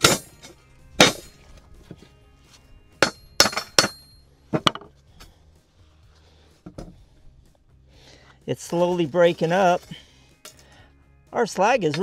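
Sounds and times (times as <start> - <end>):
hammer clanking on metal: 0.0 - 1.4, 3.0 - 4.8.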